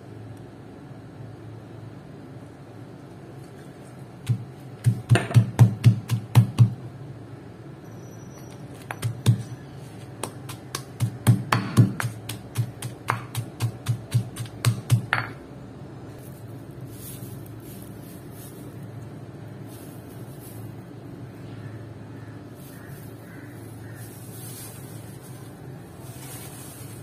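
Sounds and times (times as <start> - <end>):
stone pestle pounding in mortar: 4.2 - 6.8, 9.0 - 9.5, 10.2 - 15.4.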